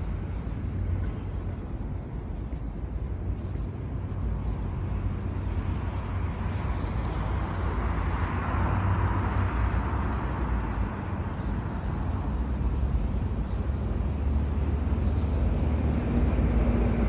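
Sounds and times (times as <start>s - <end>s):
steady low traffic rumble: 0.0s - 17.0s
vehicle passing: 4.5s - 17.0s.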